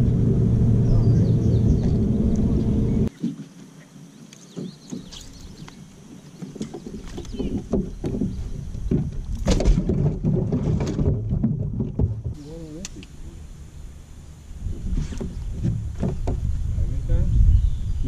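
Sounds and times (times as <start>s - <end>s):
knocks and bumps on boat: 6.4s - 12.4s, 14.9s - 16.6s.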